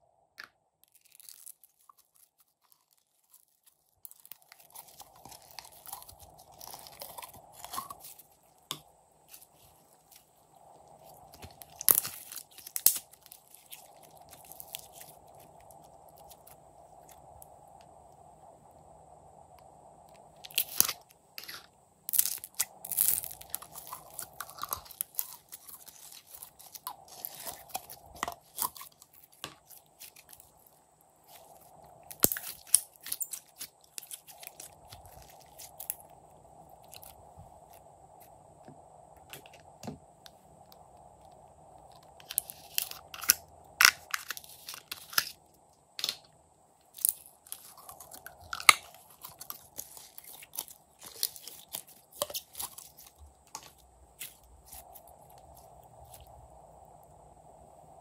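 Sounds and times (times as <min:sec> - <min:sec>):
slime crackling and popping: 0:00.8 - 0:10.2, 0:11.0 - 0:17.2, 0:20.4 - 0:36.1, 0:47.0 - 0:54.8
faint hum: 0:01.9 - 0:58.0.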